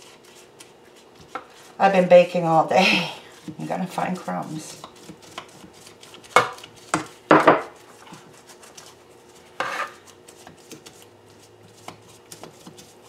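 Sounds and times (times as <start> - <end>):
ceramic knocking on metal pan: 7.3 - 7.6.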